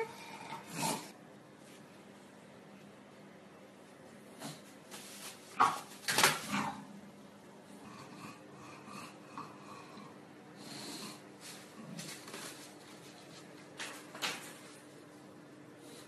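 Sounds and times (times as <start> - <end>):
dogs playing and scuffling: 4.0 - 6.7, 11.4 - 14.9.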